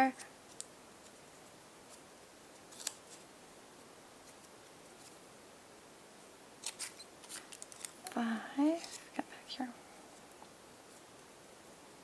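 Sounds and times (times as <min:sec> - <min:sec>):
faint room hiss: 0:00.0 - 0:12.0
scissors cutting paper: 0:02.7 - 0:03.2.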